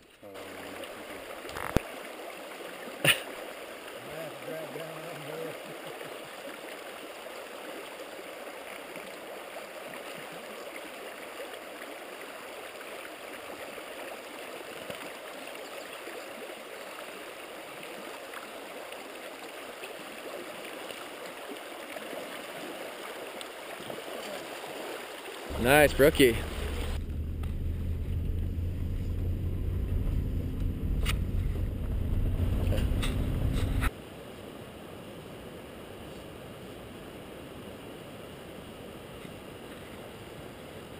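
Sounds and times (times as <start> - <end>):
river rushing over rocks: 22.2 - 28.3.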